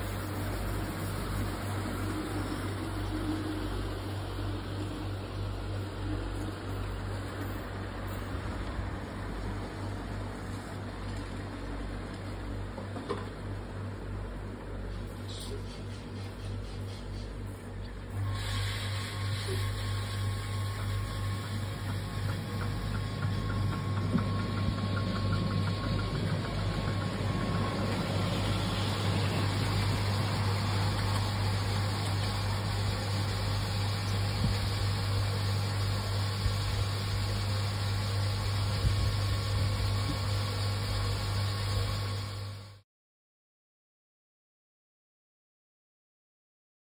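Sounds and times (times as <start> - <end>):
miniature train rumbling: 0.0 - 13.3, 19.0 - 40.4.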